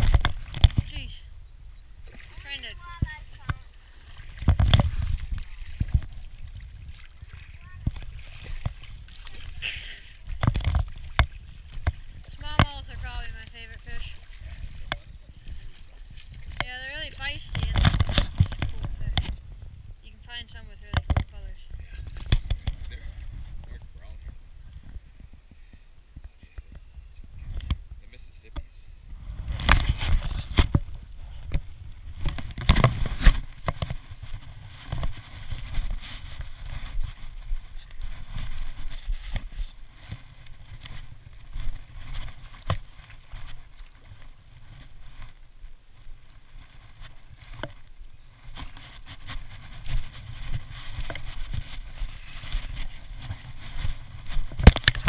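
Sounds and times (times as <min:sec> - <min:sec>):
camera knocks and rubbing: 0:00.0 - 0:01.0, 0:04.4 - 0:06.2, 0:17.3 - 0:19.5, 0:20.8 - 0:21.5, 0:22.2 - 0:23.7, 0:29.3 - 0:43.6, 0:48.5 - 0:55.0
wind rumbling on microphone: 0:00.0 - 0:55.0.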